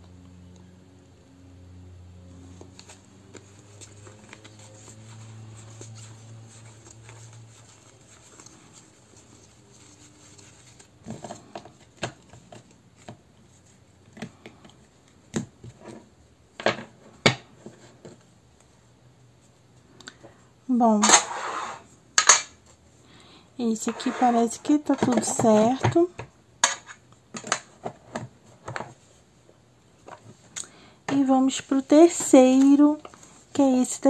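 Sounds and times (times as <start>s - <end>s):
cards rustling: 2.5s - 13.5s, 30.2s - 33.6s.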